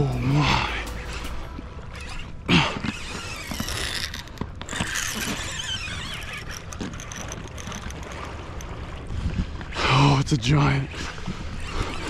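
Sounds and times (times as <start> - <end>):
fishing reel drag screaming: 0.0 - 8.9, 11.4 - 12.0.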